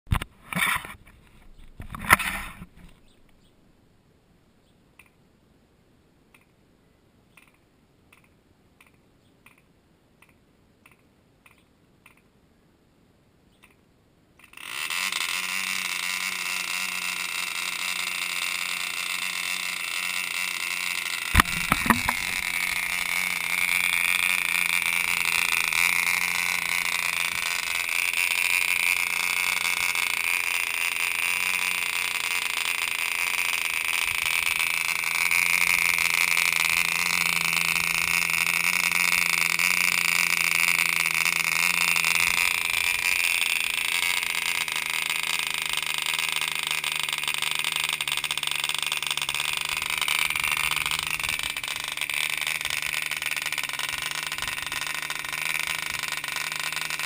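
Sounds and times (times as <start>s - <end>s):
sharp clicks: 5.0s - 5.2s, 7.3s - 12.3s, 13.5s - 13.8s, 14.4s - 57.0s
faint ticks: 7.3s - 12.3s
model engine running high buzz: 14.4s - 57.0s.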